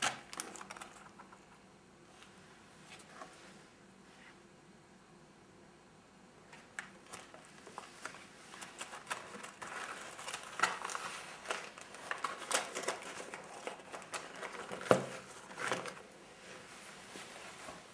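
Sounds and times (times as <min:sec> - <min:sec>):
stiff paper pages crinkling: 0:00.0 - 0:01.4, 0:06.6 - 0:16.7.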